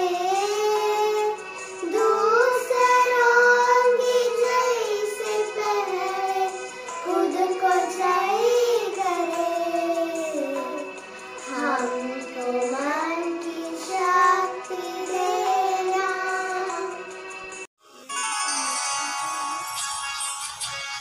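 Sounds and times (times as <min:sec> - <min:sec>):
girls singing in unison: 0:00.0 - 0:10.9.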